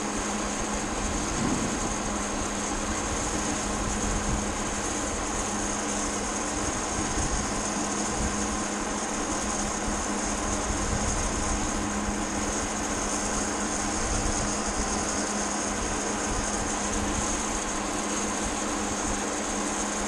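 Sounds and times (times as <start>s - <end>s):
wind rushing over microphone: 0.9s - 4.9s
low hum: 1.0s - 4.3s.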